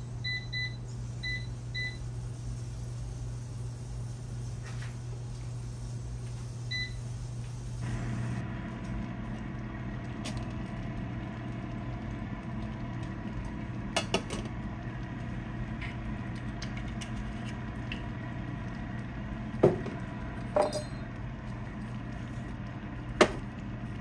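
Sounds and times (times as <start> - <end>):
oven hum and fan: 0.0 - 24.0
oven control panel beep: 0.2 - 2.1, 6.7 - 7.1.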